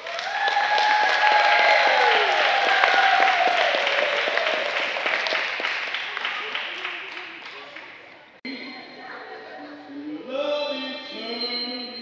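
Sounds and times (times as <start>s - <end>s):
voices cheering: 0.0s - 8.1s
audience clapping: 0.0s - 8.2s.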